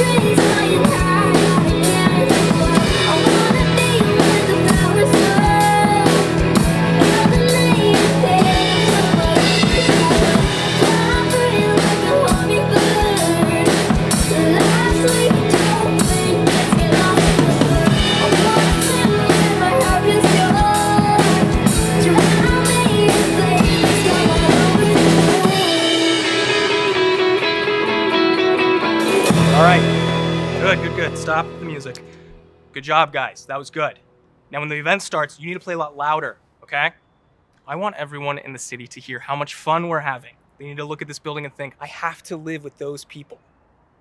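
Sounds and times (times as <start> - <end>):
electric guitar: 0.0 - 32.7
drum kit: 0.0 - 33.6
keyboard: 0.0 - 35.6.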